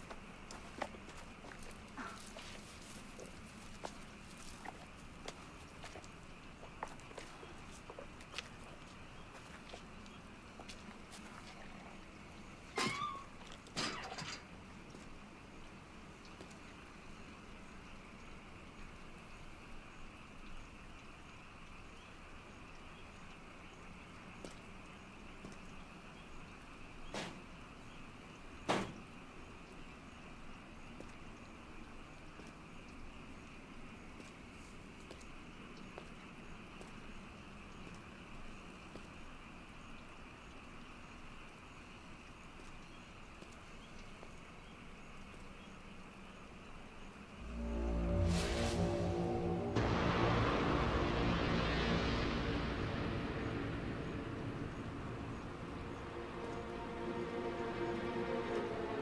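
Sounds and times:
footsteps on wet ground: 0.0s - 11.8s
faint background hiss: 0.0s - 59.0s
night-time ambience: 0.0s - 59.0s.

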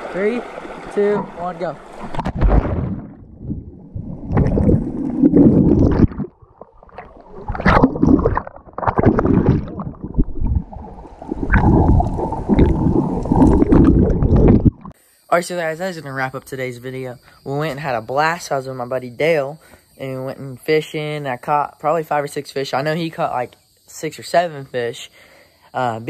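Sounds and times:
muffled underwater sloshing and bubbling: 0.0s - 15.0s.

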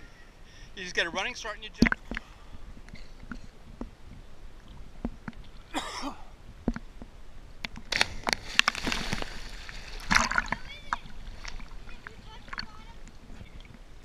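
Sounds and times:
water splashing: 1.2s - 2.5s, 7.6s - 14.0s
water lapping against camera: 1.6s - 5.8s, 6.7s - 14.0s
water rushing: 7.6s - 14.0s.

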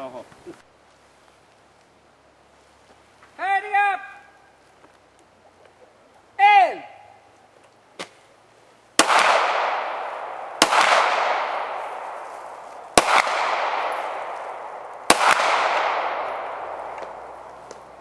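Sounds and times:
pistol shots echoing: 9.0s - 17.5s.

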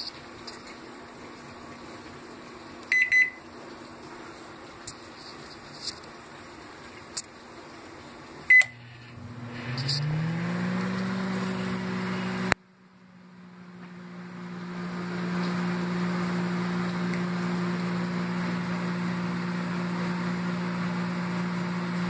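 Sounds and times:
microwave oven hum: 2.0s - 3.5s, 8.5s - 22.0s
microwave beep: 2.9s - 3.4s, 8.5s - 9.0s.

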